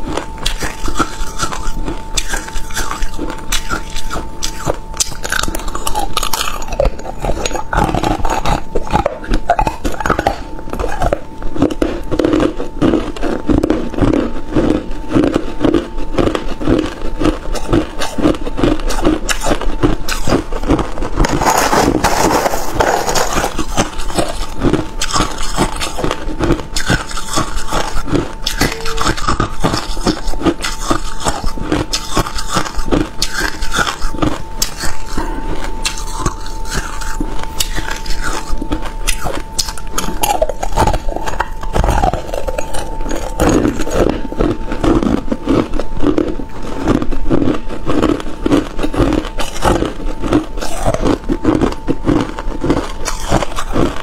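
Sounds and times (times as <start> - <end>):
crunching ice between teeth: 0.0 - 54.0
metal spoon scraping ice: 13.9 - 45.8, 47.9 - 54.0.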